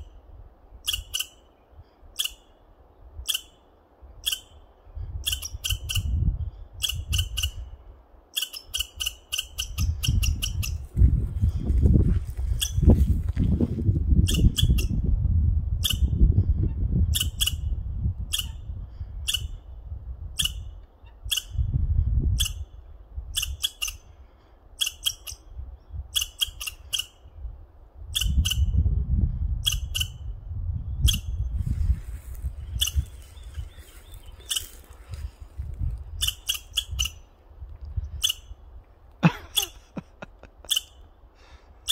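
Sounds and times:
squirrel scolding chirps: 0:00.8 - 0:11.7, 0:12.5 - 0:12.9, 0:14.1 - 0:15.0, 0:17.0 - 0:21.7, 0:22.3 - 0:24.2, 0:24.8 - 0:28.9, 0:29.6 - 0:38.8, 0:39.4 - 0:40.0, 0:40.6 - 0:41.2
low rumbling microphone noise: 0:09.9 - 0:20.4, 0:28.7 - 0:36.3.

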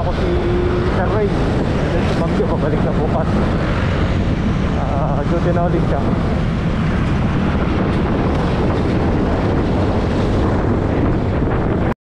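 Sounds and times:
road noise: 0:00.0 - 0:12.0
wind buffeting microphone: 0:00.0 - 0:12.0.

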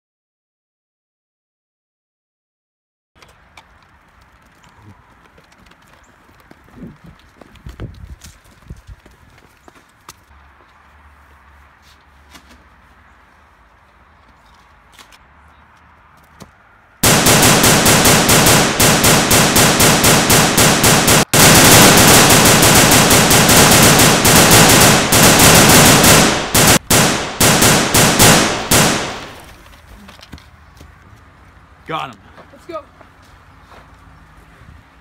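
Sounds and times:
automatic gunfire bursts: 0:17.0 - 0:29.4.

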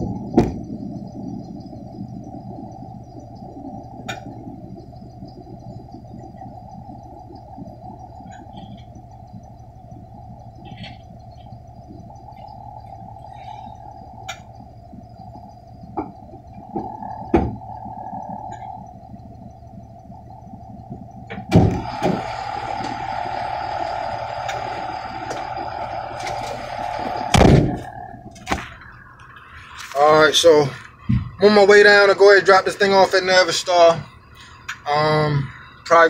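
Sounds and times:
truck engine idling: 0:00.0 - 0:36.0
loud thump: 0:16.7 - 0:17.6, 0:21.3 - 0:22.2, 0:27.3 - 0:28.8
rushing noise: 0:21.6 - 0:33.8.

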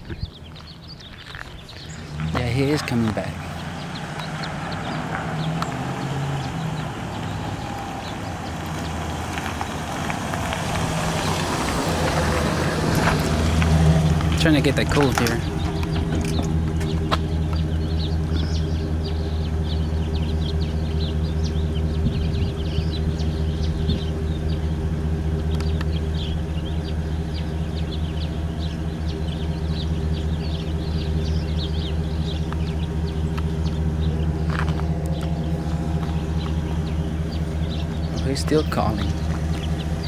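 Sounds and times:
engine idling: 0:00.0 - 0:40.0
small birds chirping: 0:00.0 - 0:40.0.

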